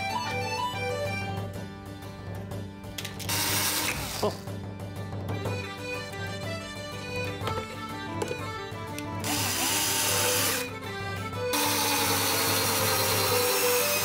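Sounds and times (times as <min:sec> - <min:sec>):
cordless drill driving screw into wood: 0:03.2 - 0:04.3, 0:09.2 - 0:10.7, 0:11.5 - 0:14.0.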